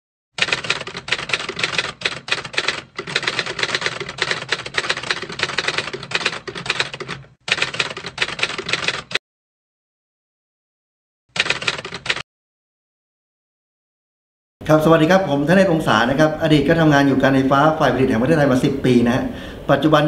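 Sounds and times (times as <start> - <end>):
typewriter keys clacking: 0.4 - 9.2, 11.4 - 12.2.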